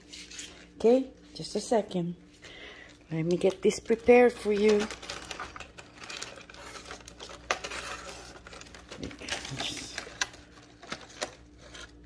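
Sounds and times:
plastic bag crinkling: 2.7 - 12.0.

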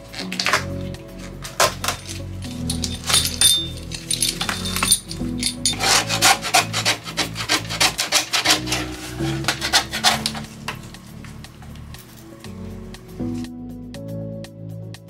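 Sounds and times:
vinyl and foam being ripped off: 0.0 - 2.1, 6.1 - 10.8.

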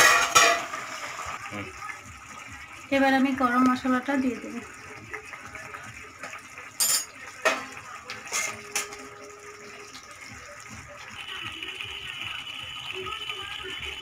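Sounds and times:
curry bubbling: 0.7 - 14.0
spoon scraping and clinking on pot: 6.8 - 7.7, 8.3 - 9.1.

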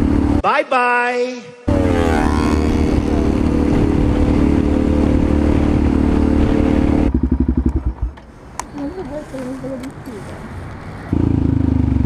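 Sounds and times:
motorcycle engine cruising: 0.0 - 0.4, 1.7 - 12.0
wind rushing over microphone: 1.7 - 7.9.

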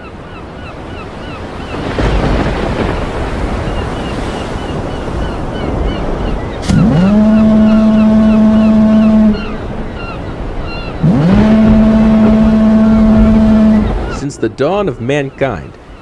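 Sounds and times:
ocean waves: 0.0 - 16.0
foghorn blasts: 6.6 - 10.2, 10.8 - 14.3.

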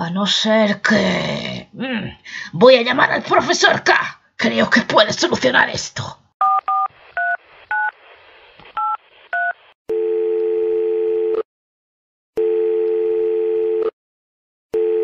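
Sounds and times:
telephone ringing tone: 8.8 - 11.4, 12.4 - 13.9, 14.7 - 15.0.

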